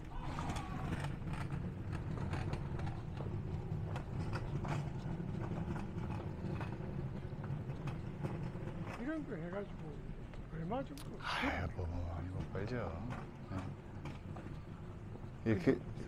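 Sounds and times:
cart frame rattling: 0.0 - 9.9
hand cart rolling over asphalt: 0.0 - 16.0.

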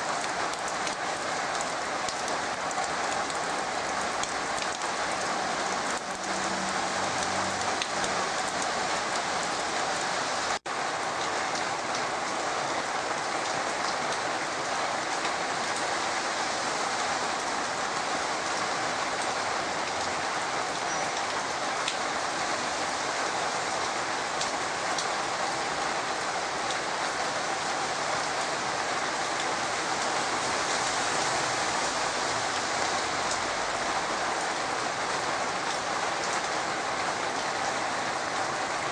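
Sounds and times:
heavy rain on soil: 0.0 - 38.9.

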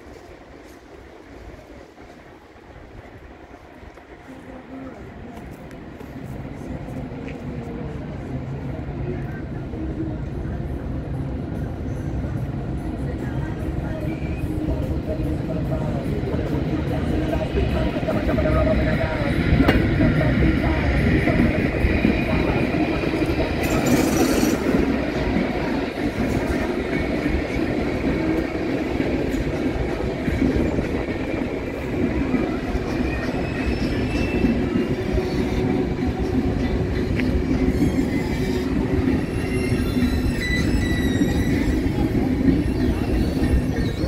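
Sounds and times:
train wheels clattering on rails: 16.2 - 44.0
high wheel squeals: 23.6 - 24.7, 32.9 - 35.8, 37.5 - 44.0.

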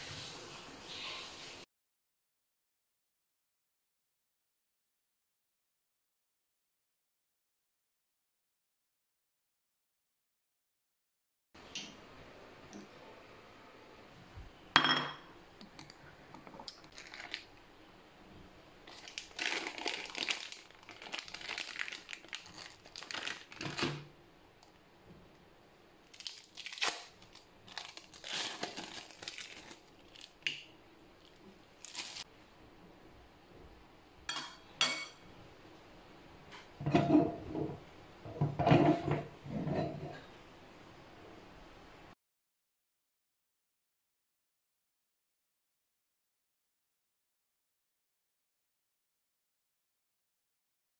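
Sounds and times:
plastic wrapper crinkling: 16.5 - 17.6, 18.8 - 24.0, 26.0 - 32.3.

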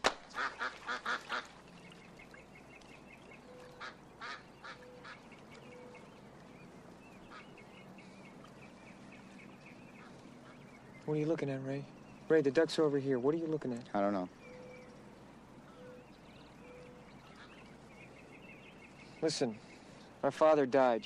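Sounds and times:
ducks quacking: 0.3 - 1.6, 3.2 - 6.1, 7.1 - 10.8, 17.0 - 18.2.

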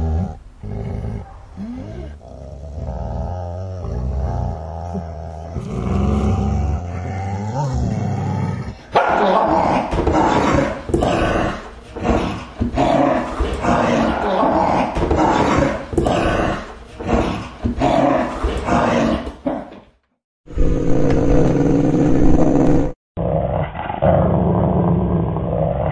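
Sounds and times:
dog barking: 1.2 - 1.6.

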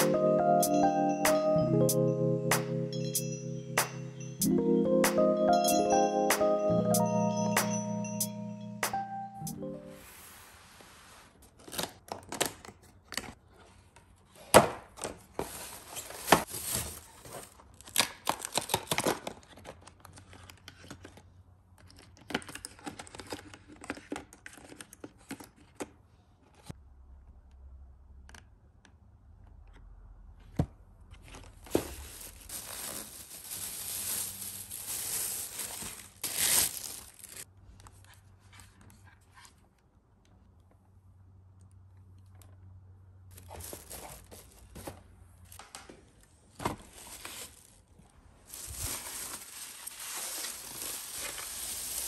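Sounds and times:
plastic packaging crinkling and tearing: 15.4 - 20.5, 31.6 - 37.5, 43.3 - 44.8, 46.8 - 52.0
packaging knocks and rustles: 31.3 - 37.4, 43.4 - 45.0.

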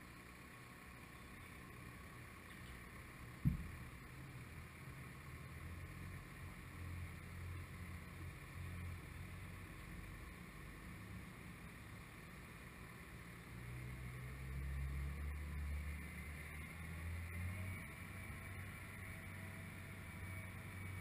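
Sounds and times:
crane engine rumble: 0.0 - 21.0
sharp knock: 3.4 - 3.7.

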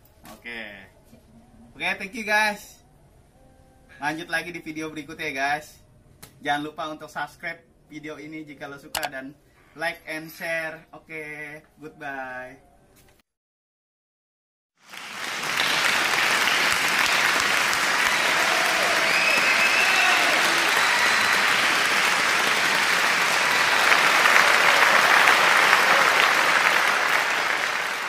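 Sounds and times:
crowd applause: 14.8 - 28.0.

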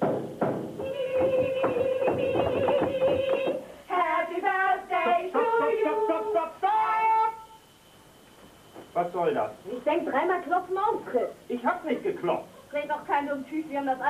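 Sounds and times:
rapid clatter of sharp taps: 0.0 - 3.6
group of voices singing: 0.8 - 7.6.

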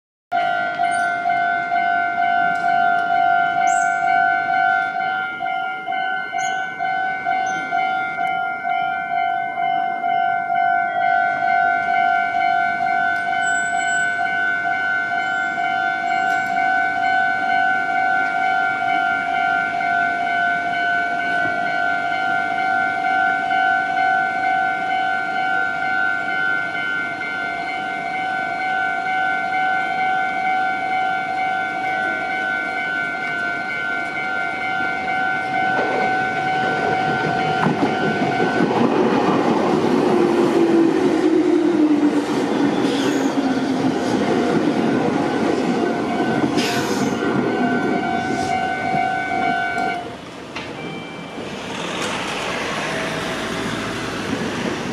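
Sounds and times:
crossing warning bell ringing: 0.3 - 54.9
train rumbling over rails: 0.4 - 54.9
train motor whine: 39.8 - 54.9.

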